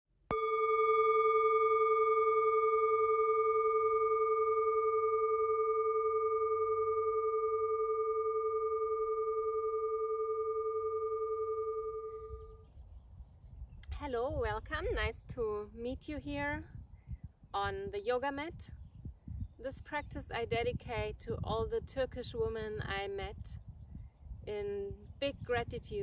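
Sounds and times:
singing bowl ringing: 0.3 - 12.6.

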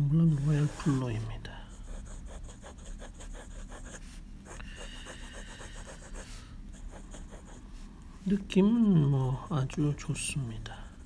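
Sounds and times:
fountain pen scratching on paper: 1.8 - 7.6.

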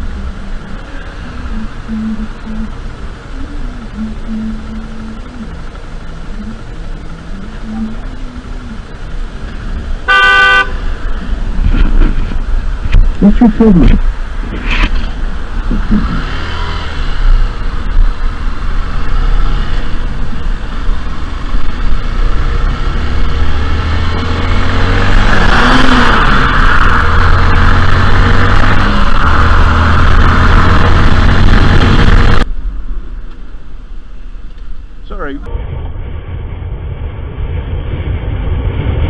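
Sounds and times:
motorcycle engine running: 0.0 - 13.9
wind rushing over microphone: 13.8 - 33.2, 35.5 - 39.0.

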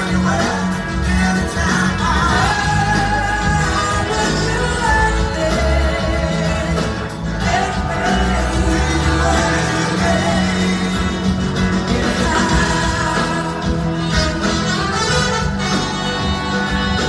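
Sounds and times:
live blues-rock band: 0.0 - 17.0
woman singing: 11.9 - 14.0.

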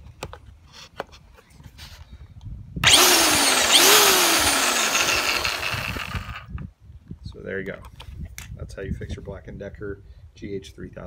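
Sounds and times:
string trimmer motor whirring: 2.8 - 6.6.

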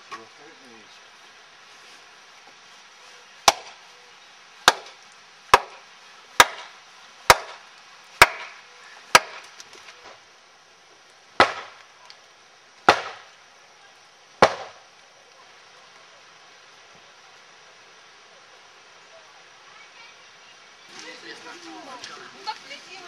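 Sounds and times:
axe splitting firewood: 3.5 - 3.7, 4.7 - 5.8, 6.4 - 6.7, 7.3 - 7.6, 8.2 - 9.9, 11.4 - 11.8, 12.9 - 13.2.

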